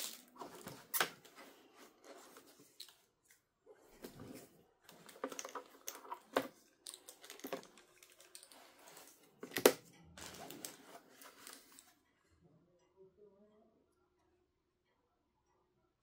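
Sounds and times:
packaging rustling and crinkling: 4.0 - 12.0.

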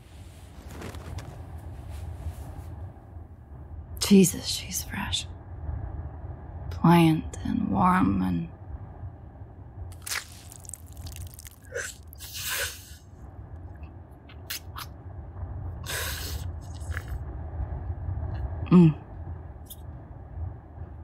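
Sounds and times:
low steady rumble: 0.0 - 21.0
wet sucking and slurping mouth noises: 9.9 - 13.0, 15.8 - 17.2.

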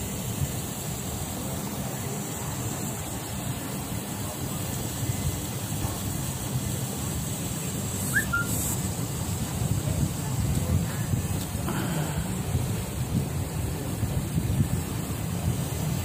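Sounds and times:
low city rumble: 0.0 - 16.0
short chirp: 8.1 - 8.8.

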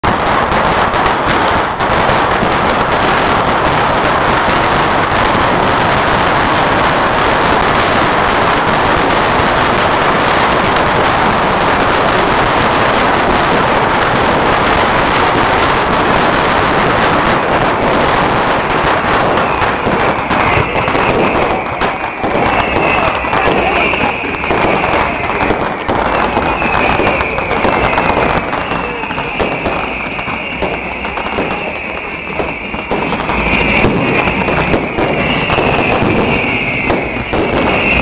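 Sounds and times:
fireworks crackling: 0.0 - 38.0.

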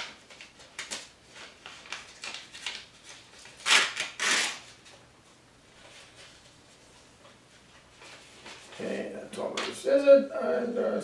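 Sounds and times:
paper rustling and crinkling: 0.0 - 5.0, 5.8 - 8.9.

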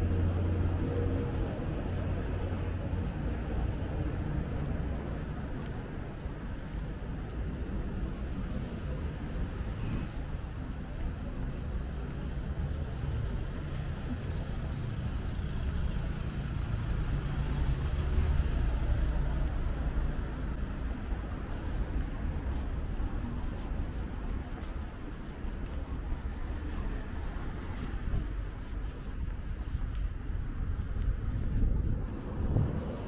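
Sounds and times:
road traffic rumble: 0.0 - 33.0.

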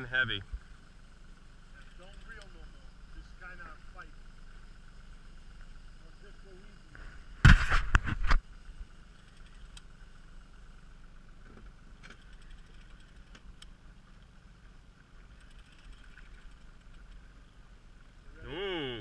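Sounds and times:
outboard motor humming: 0.0 - 19.0
faint ticks: 1.7 - 2.6, 9.1 - 10.0, 11.4 - 14.4, 15.0 - 17.5.

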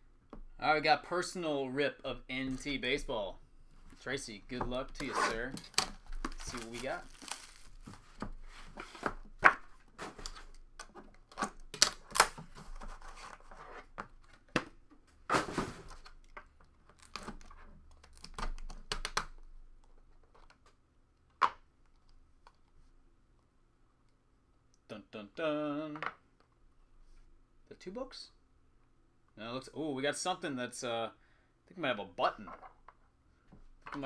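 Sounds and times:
shrink wrap crackling and tearing: 5.6 - 8.0
box knocks and scrapes: 15.2 - 16.0.

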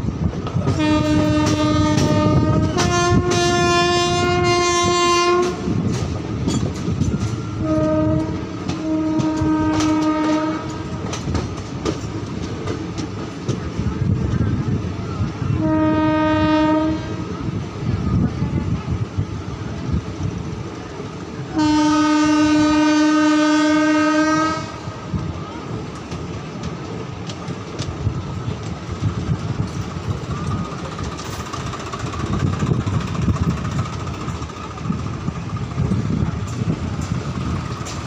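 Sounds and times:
clickety-clack of rail joints: 0.0 - 38.0
train wheel rumble: 0.0 - 38.0
two-tone train horn: 0.7 - 5.8, 7.4 - 11.1, 15.4 - 17.5, 21.5 - 25.1.

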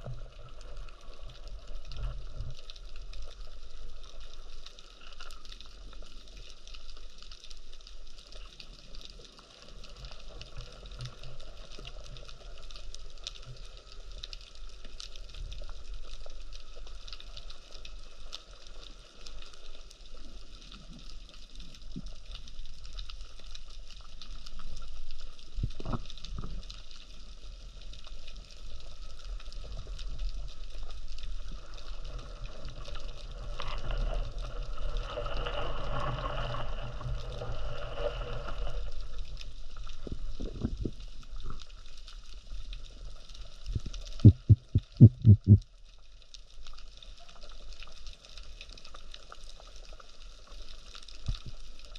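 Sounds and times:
hissing water noise: 0.0 - 45.7
fine crackling underwater: 0.0 - 51.9
low underwater rumble: 28.7 - 45.9.

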